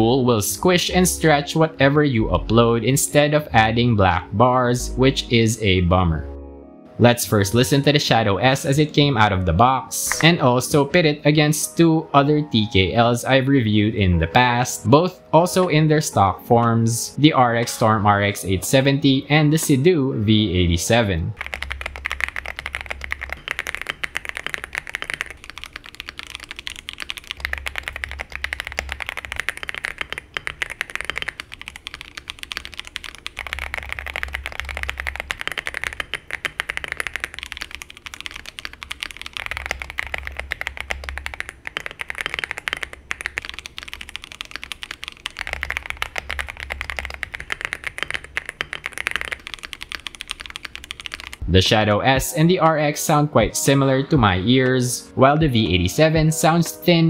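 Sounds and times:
fast typing on mechanical keyboards: 0.0 - 1.8, 20.8 - 51.4.

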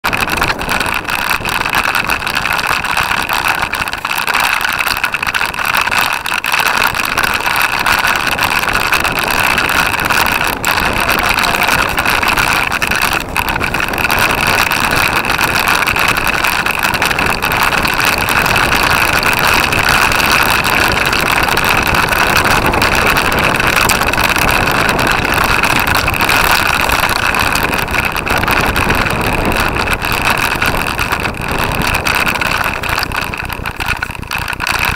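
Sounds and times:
tyres rumbling over dirt: 0.0 - 34.9
wind rush: 0.0 - 34.9.

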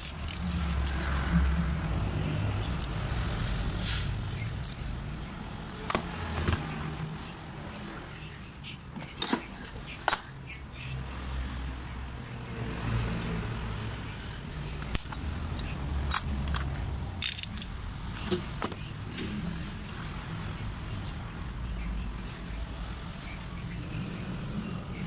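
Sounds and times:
small metal parts clicking: 0.0 - 1.7, 2.4 - 3.0, 4.4 - 4.9, 5.7 - 7.2, 14.8 - 17.8.

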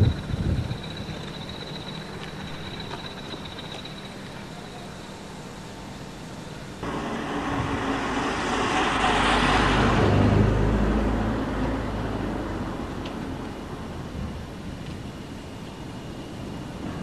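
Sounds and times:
vehicle passing by: 6.8 - 13.4.

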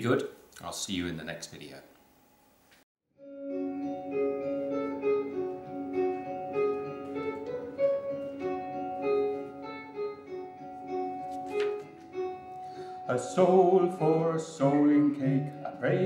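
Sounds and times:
plucked guitar music: 3.2 - 16.0.

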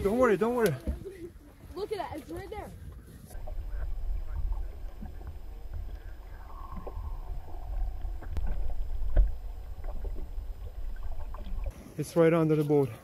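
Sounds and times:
underwater rumble of water: 2.8 - 11.8
faint falling tone: 3.4 - 11.7.

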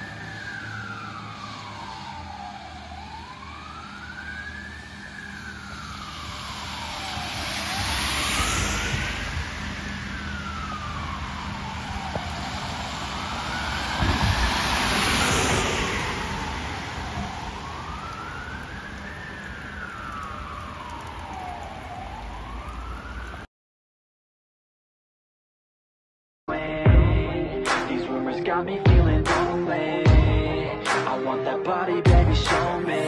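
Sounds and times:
fire engine siren wailing: 0.0 - 23.5, 26.5 - 33.0
rain hissing: 5.8 - 23.4.

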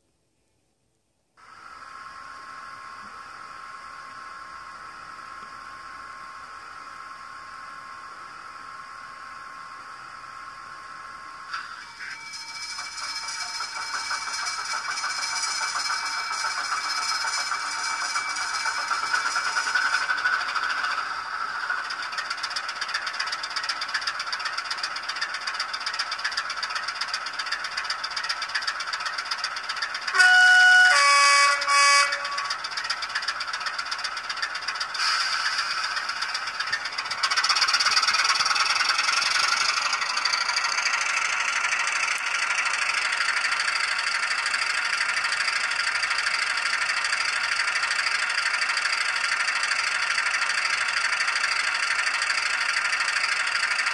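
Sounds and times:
model diesel engine ticking over: 11.6 - 53.9
two-tone horn: 30.0 - 32.7.

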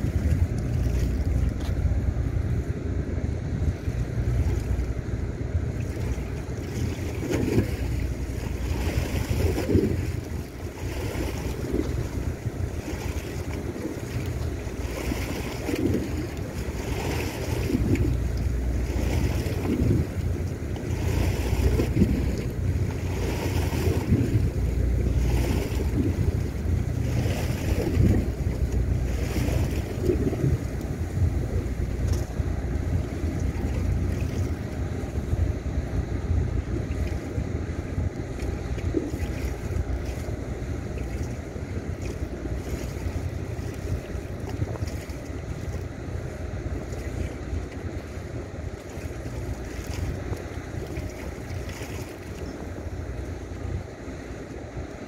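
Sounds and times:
wind buffeting microphone: 0.0 - 55.0
water slapping against quay wall: 5.8 - 34.8.

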